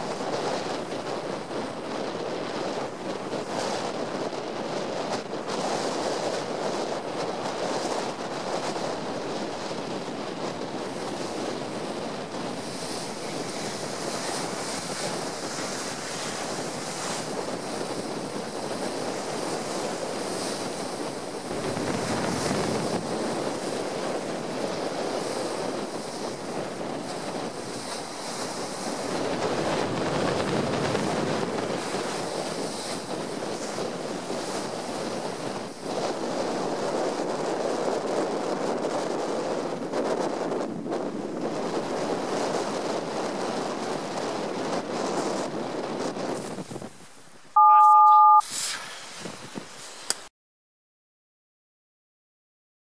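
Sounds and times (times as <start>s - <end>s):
strong wind rushing: 0.0s - 47.0s
wind buffeting microphone: 0.0s - 47.2s, 48.6s - 50.1s
waves splashing against stone wall: 10.9s - 36.2s.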